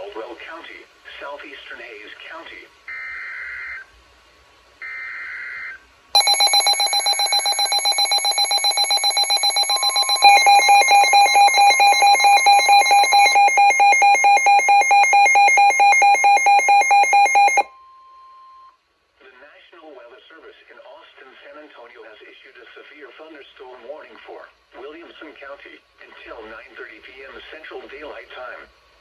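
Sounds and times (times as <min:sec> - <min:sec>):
rapid pulsing alarm beeps: 0:06.2 - 0:17.7
steady attention tone: 0:06.2 - 0:17.7.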